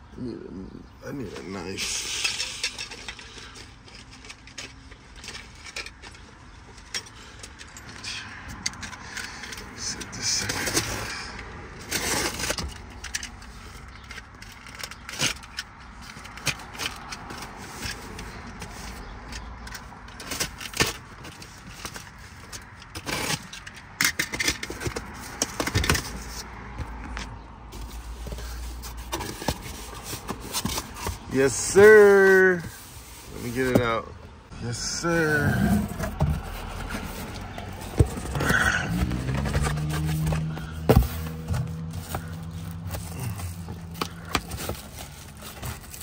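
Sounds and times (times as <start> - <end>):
cardboard box scraping and rattling: 9.3 - 26.6, 27.7 - 34.1, 34.8 - 46.0
tape crackling: 34.8 - 46.0.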